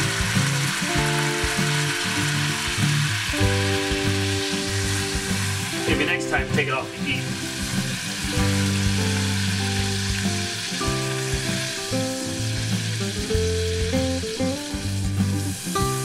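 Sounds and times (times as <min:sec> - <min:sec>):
background music: 0:00.0 - 0:16.0
butter sauce sizzling in saucepan: 0:00.0 - 0:16.0.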